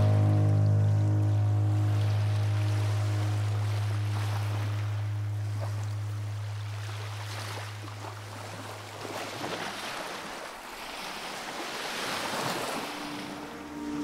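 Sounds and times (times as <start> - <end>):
low steady hum: 0.0 - 9.4
waves washing on shore: 0.0 - 14.0.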